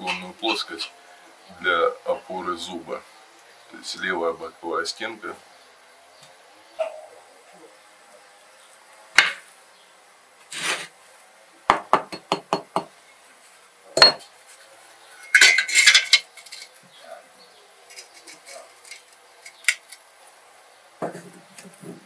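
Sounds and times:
hammer tapping on brick: 11.7s - 12.9s
metal hand tools clinking: 15.2s - 16.8s, 17.9s - 19.9s.

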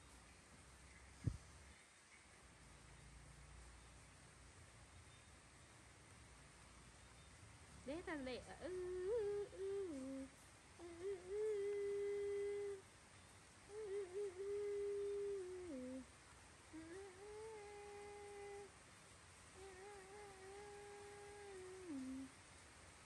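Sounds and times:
person humming a slow tune: 7.9s - 12.9s, 13.6s - 18.8s, 19.5s - 22.4s.

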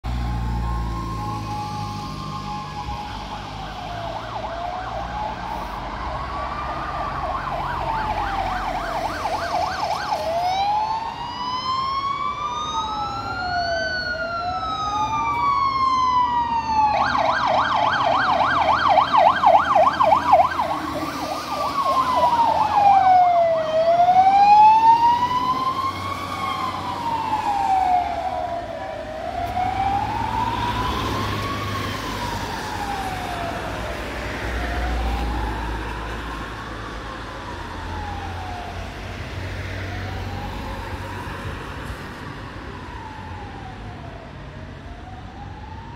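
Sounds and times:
fire engine sirens wailing: 0.0s - 45.9s
truck engines rumbling: 0.0s - 45.9s
siren rapid yelp: 0.3s - 34.0s, 36.8s - 39.0s.

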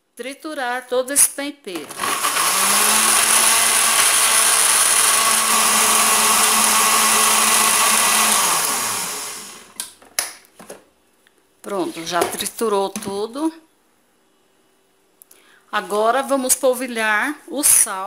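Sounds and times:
blender running: 1.8s - 9.8s.

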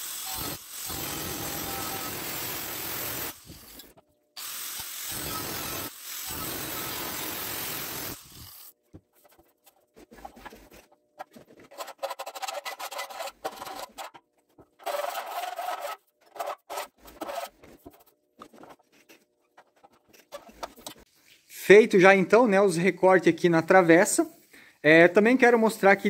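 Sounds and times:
angle grinder cutting metal tube: 0.0s - 8.7s, 11.8s - 14.2s, 14.8s - 17.7s
hand file scraping metal: 10.0s - 20.8s.

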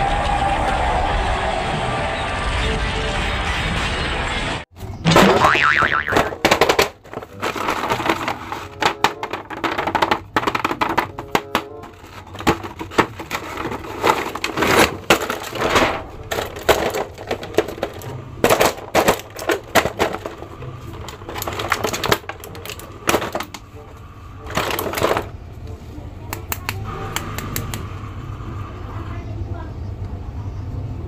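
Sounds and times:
plastic packaging crinkling: 6.5s - 23.5s.

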